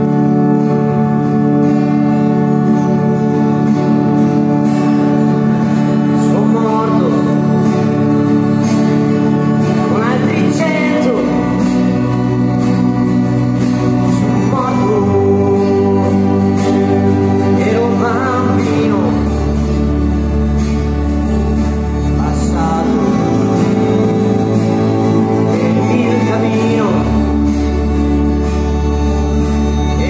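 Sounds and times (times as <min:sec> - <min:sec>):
acoustic guitar strumming: 0:00.0 - 0:30.0
organ sustained chords: 0:00.0 - 0:30.0
man singing: 0:05.8 - 0:13.1, 0:13.8 - 0:20.1, 0:21.9 - 0:28.4, 0:29.6 - 0:30.0.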